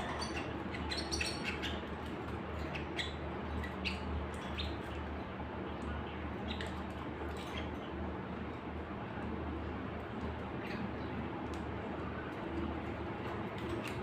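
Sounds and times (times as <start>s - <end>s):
small birds chirping: 0.0s - 8.5s.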